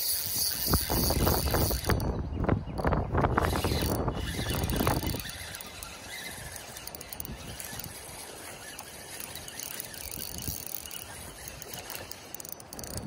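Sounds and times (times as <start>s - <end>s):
spinning reel being worked: 0.0s - 2.2s, 2.8s - 13.0s
steady outdoor hiss: 0.0s - 2.2s
wind buffeting microphone: 0.2s - 13.0s.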